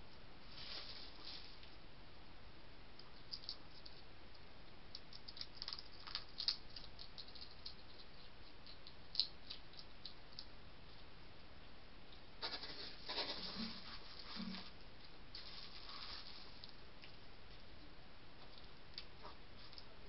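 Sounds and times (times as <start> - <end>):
hedgehogs scuffling and rustling: 0.4 - 1.8, 12.4 - 17.8
small clicks and scratches: 3.0 - 11.1.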